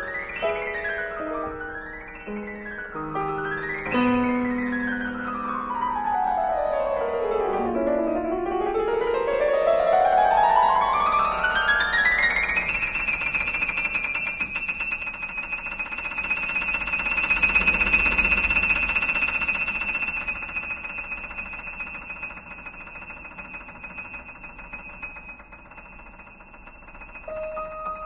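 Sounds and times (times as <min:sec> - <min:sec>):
piano music: 0:00.0 - 0:14.6, 0:27.1 - 0:28.0.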